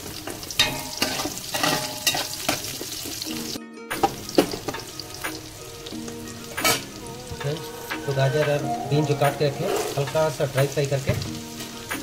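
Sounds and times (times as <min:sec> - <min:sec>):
background music: 0:00.0 - 0:12.0
food frying in oil: 0:00.0 - 0:12.0.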